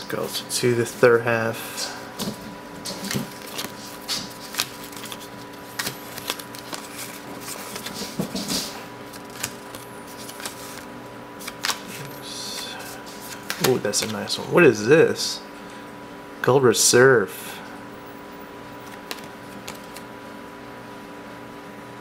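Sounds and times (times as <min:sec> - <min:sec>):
cards flicking and rustling: 0:02.2 - 0:14.3, 0:18.8 - 0:20.1.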